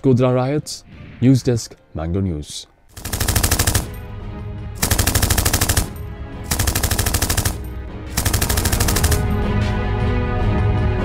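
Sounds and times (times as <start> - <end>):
rapid automatic gunfire: 3.0 - 4.1, 4.8 - 9.5.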